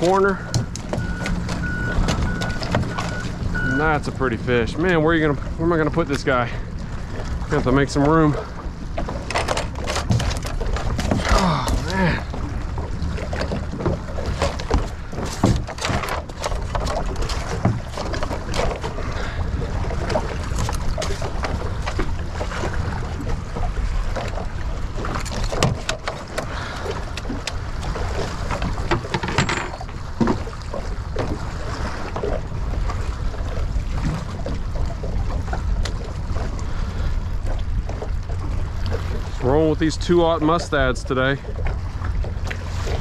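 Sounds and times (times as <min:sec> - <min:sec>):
water lapping against boat hull: 0:00.0 - 0:43.0
knocks of fish and tackle on deck: 0:09.0 - 0:11.9, 0:13.3 - 0:18.9, 0:28.5 - 0:30.6.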